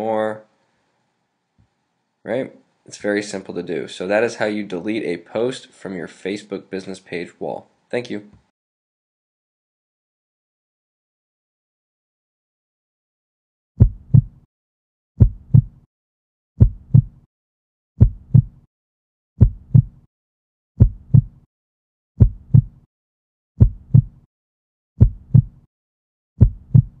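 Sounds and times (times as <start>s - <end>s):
heartbeat lub-dub thumps: 13.8s - 14.4s, 15.2s - 15.8s, 16.6s - 17.2s, 18.0s - 18.6s, 19.4s - 20.0s, 20.8s - 21.4s, 22.2s - 22.8s, 23.6s - 24.2s, 25.0s - 25.7s, 26.4s - 27.0s.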